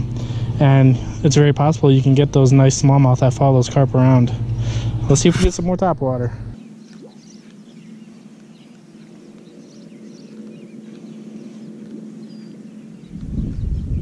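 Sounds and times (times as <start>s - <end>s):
steady low hum: 0.0s - 14.0s
faint bird chirps: 6.6s - 14.0s
wind buffeting microphone: 9.4s - 14.0s.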